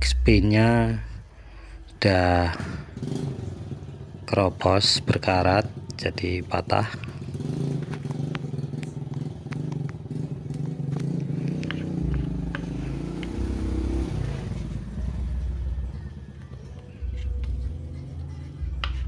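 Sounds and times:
engine running: 0:00.0 - 0:04.2, 0:05.1 - 0:19.0.

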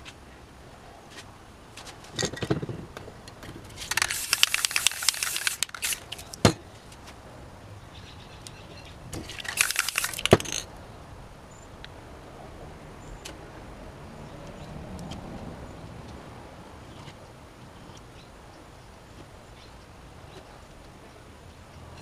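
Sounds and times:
spray paint can hissing: 0:03.7 - 0:06.4, 0:09.2 - 0:10.6.

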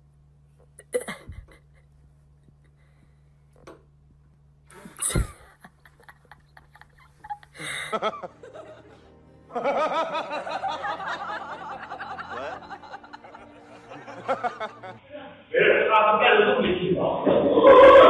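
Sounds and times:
people laughing: 0:04.7 - 0:15.4
music: 0:07.6 - 0:15.0.

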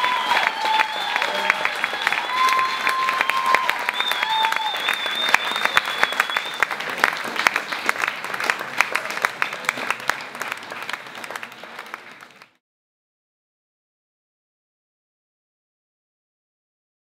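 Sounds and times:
audience applauding: 0:00.0 - 0:12.6.

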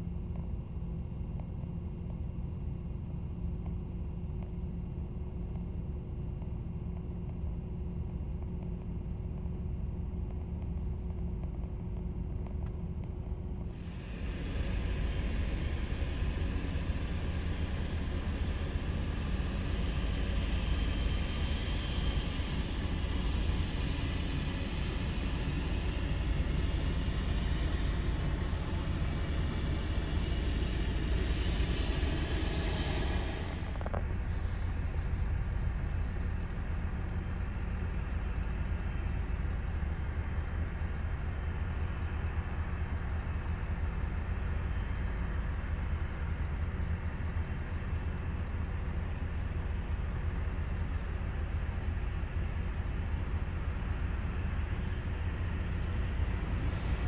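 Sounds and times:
jet engines at takeoff thrust: 0:00.2 - 0:57.0
jet rumble: 0:27.4 - 0:35.4.

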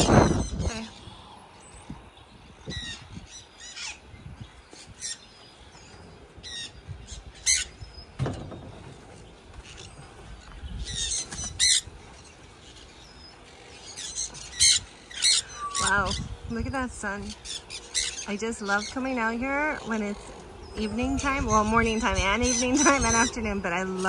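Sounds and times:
parrots squawking: 0:02.7 - 0:04.0, 0:06.4 - 0:08.0, 0:10.8 - 0:16.3, 0:17.2 - 0:19.0, 0:19.7 - 0:23.5
low thuds: 0:07.8 - 0:12.1.

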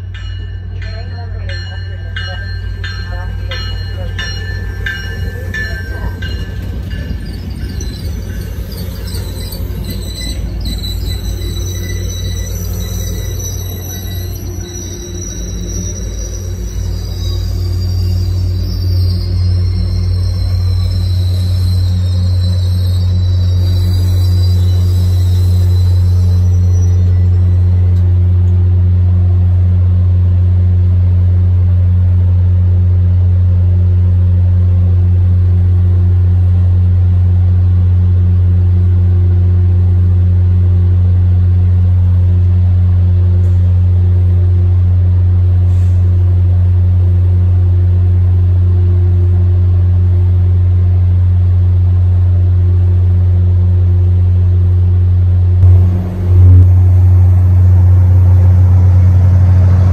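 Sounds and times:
locomotive idling: 0:55.6 - 0:59.9.

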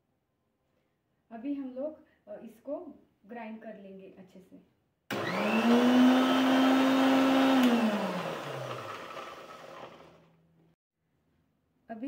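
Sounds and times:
mixer grinder motor whining: 0:05.1 - 0:10.3.

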